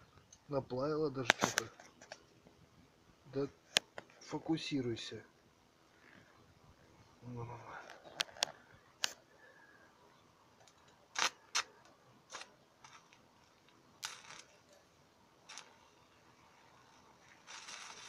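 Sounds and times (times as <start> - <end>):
welding arc crackling: 10.6 - 14.8, 15.4 - 18.0.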